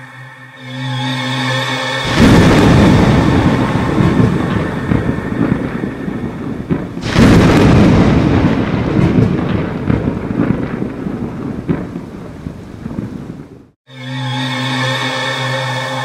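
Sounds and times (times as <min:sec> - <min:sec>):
thunder clap: 0:02.0 - 0:13.8
thunder rumbling: 0:02.0 - 0:13.8.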